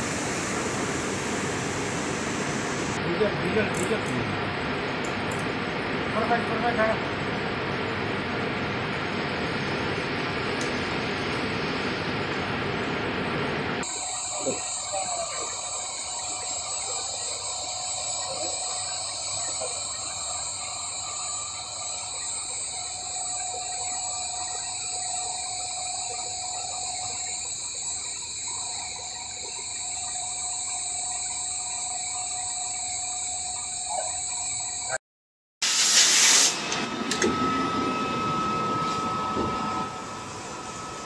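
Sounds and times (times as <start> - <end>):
machine hum: 0.0 - 35.0, 36.3 - 41.0
high-pitched motor whines: 13.8 - 35.0, 36.5 - 41.0.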